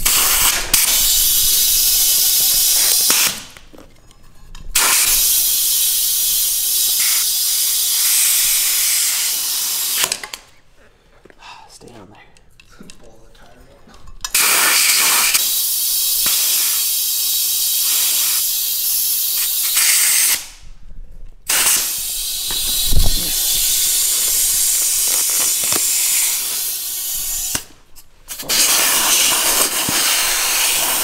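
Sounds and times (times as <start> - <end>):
compressed air hissing: 0.0 - 3.6, 4.7 - 10.2, 14.3 - 20.6, 21.4 - 31.0
loud thump: 22.5 - 23.5.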